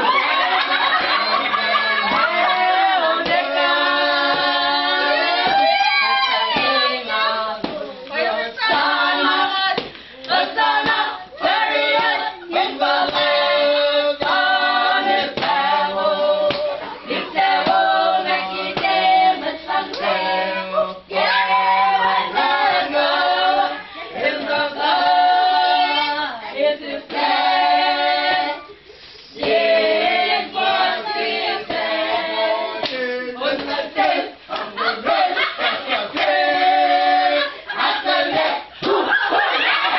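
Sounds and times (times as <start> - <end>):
group singing a cappella: 0.0 - 39.9
hand clapping: 16.5 - 16.7.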